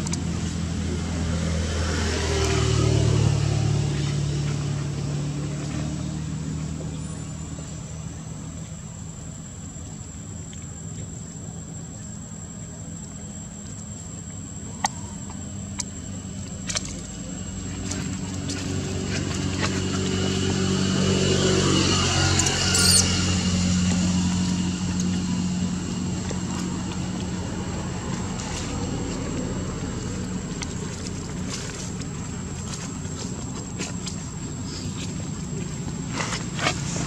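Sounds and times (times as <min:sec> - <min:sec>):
vehicle passing by: 0:00.0 - 0:08.3, 0:16.8 - 0:37.0.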